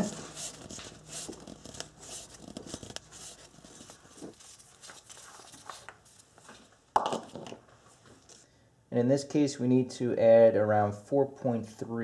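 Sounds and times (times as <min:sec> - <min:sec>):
glove rustling: 0:00.0 - 0:06.8.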